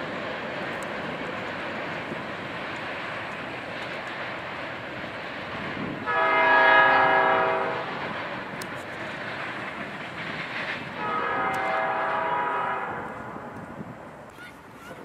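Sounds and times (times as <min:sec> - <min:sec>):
freight train rumbling: 0:00.0 - 0:15.0
locomotive air horn blasts: 0:06.1 - 0:07.9, 0:11.0 - 0:13.1.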